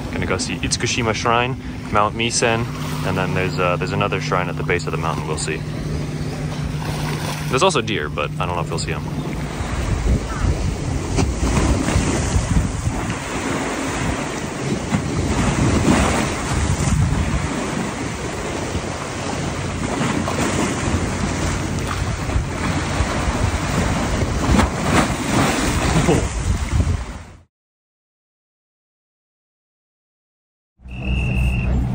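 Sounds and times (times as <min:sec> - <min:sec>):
waves splashing against seawall: 0:00.0 - 0:27.2
wind buffeting microphone: 0:04.5 - 0:27.4.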